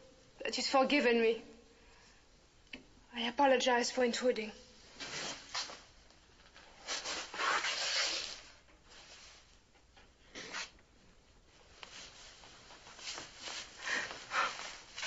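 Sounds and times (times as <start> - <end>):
clothing rustling: 4.8 - 9.7, 11.4 - 15.0.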